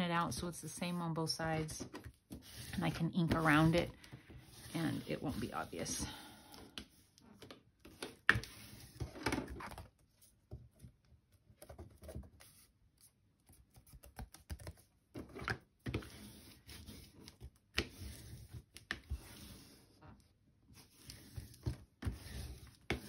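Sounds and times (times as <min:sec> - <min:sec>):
bone folder scraping and tapping: 0:21.0 - 0:23.0.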